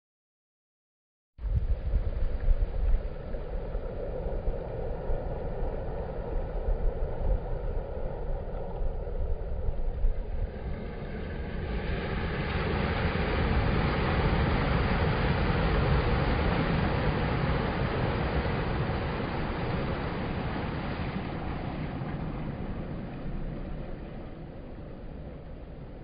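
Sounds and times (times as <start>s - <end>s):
wind buffeting microphone: 1.4s - 26.0s
wave breaking: 1.5s - 26.0s
surf washing over rocks: 10.4s - 26.0s.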